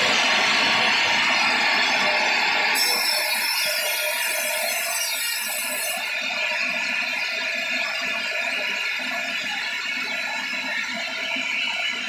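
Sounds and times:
sawmill machine running: 0.0 - 12.0
band saw cutting log: 0.1 - 6.1.

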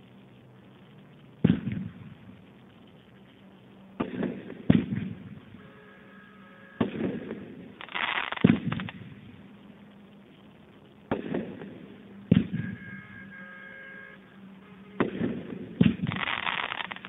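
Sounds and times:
fireworks reports with rumble: 0.0 - 17.0
dense cluster of firework snaps: 0.7 - 5.6, 6.8 - 12.6, 15.0 - 17.0.

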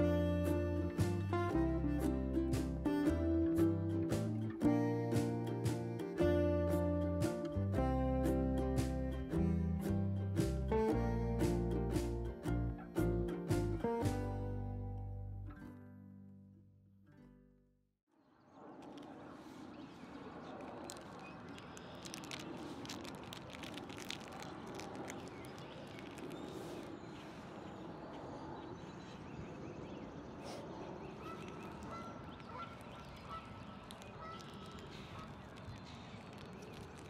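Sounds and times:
outdoor lake background: 0.0 - 15.8, 18.1 - 37.0
waterfowl calling: 31.2 - 35.6.

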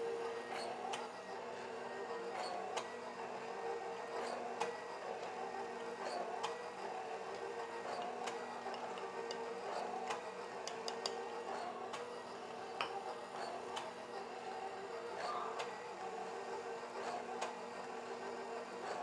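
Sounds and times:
mixer motor hum: 0.0 - 19.0
spoon tapping on bowl: 10.7 - 11.2.

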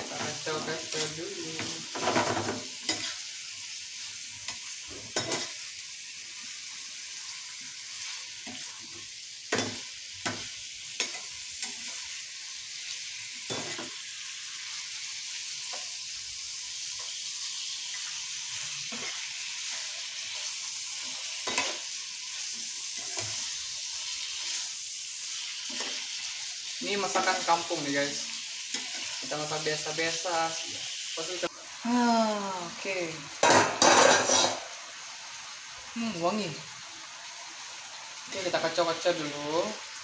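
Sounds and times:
metal spoon scraping a pan: 0.0 - 3.3, 4.4 - 5.7, 9.5 - 12.2, 17.9 - 26.4, 33.4 - 34.8
chicken sizzling in oil: 0.0 - 40.0.

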